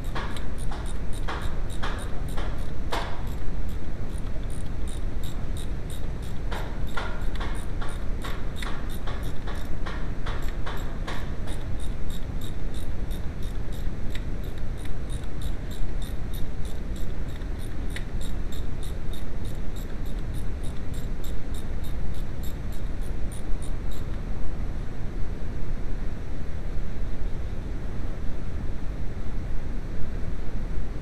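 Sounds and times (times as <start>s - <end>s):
hand ratchet clicking: 0.0s - 3.4s, 4.1s - 22.8s.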